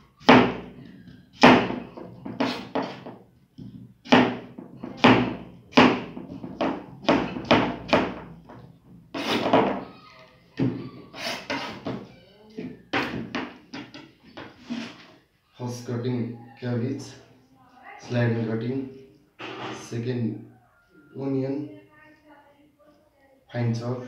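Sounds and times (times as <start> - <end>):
knife knocking on cutting board: 1.4 - 8.7, 12.9 - 14.5.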